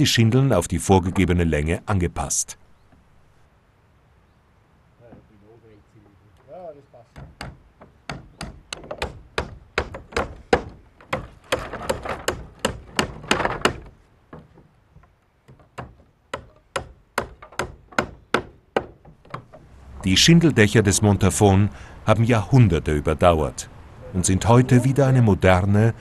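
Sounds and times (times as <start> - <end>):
hammer tapping nails into wood: 7.1 - 14.5, 15.5 - 19.6.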